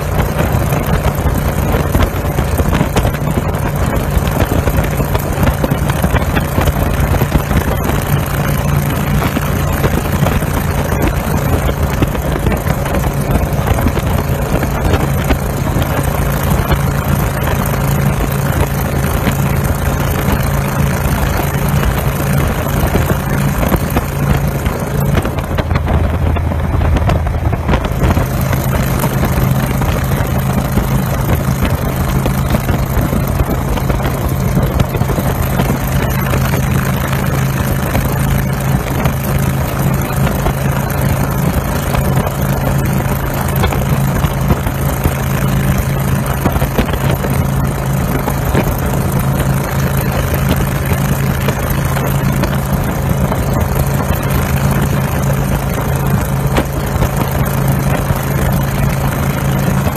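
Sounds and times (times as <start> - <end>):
vehicle engine running: 0.0 - 59.9
wind noise: 0.0 - 59.9.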